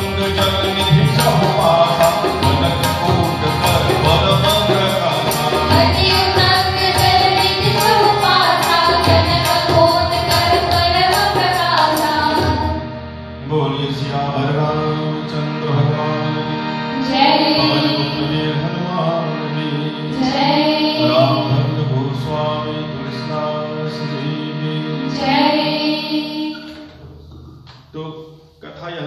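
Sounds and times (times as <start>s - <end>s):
man singing devotional song: 0.0s - 12.5s, 13.4s - 26.1s
steady percussion beat: 0.0s - 12.7s
harmonium: 0.0s - 27.0s.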